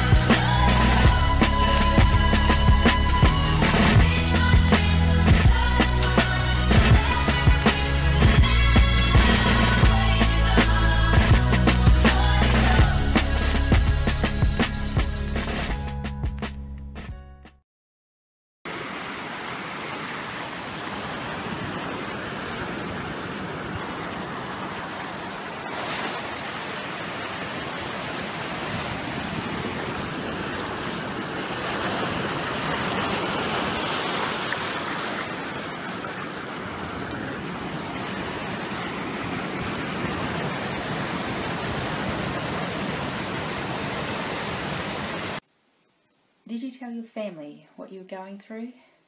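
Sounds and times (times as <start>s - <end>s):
waves breaking on shore: 18.7s - 45.4s.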